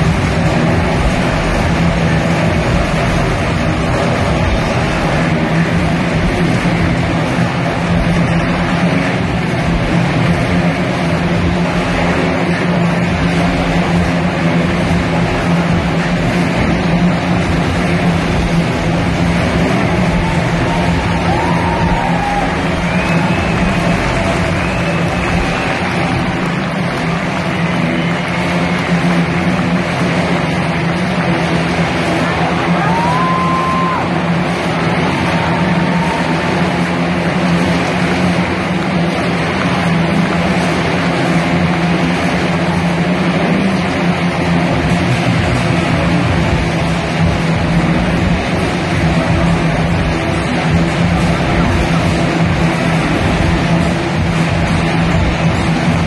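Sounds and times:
motorcycle engines: 0:00.0 - 0:56.0
high whistle-like tone: 0:22.7 - 0:25.9.

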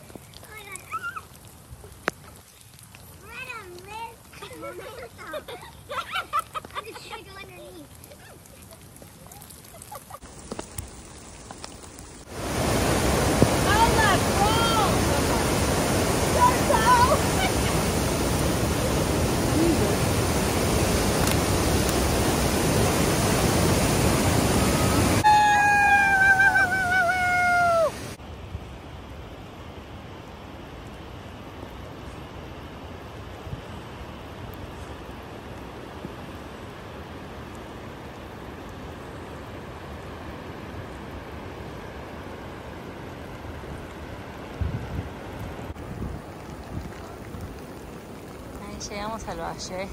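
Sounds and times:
distant falling water: 0:00.0 - 0:49.9
rain: 0:00.0 - 0:49.9
river rushing over rocks: 0:10.3 - 0:28.2.

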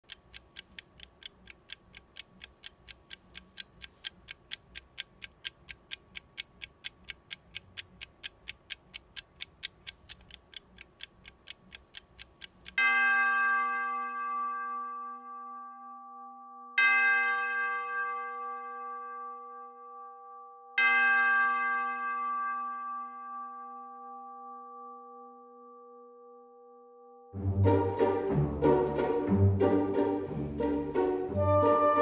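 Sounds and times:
clock ticking fast: 0:00.0 - 0:12.9.

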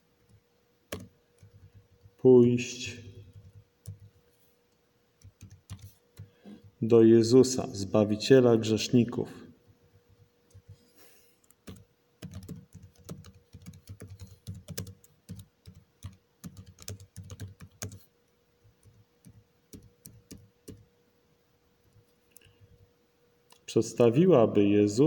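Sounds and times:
keyboard typing: 0:00.9 - 0:02.2, 0:03.2 - 0:04.2, 0:05.2 - 0:06.4, 0:11.4 - 0:18.1, 0:18.7 - 0:20.9.

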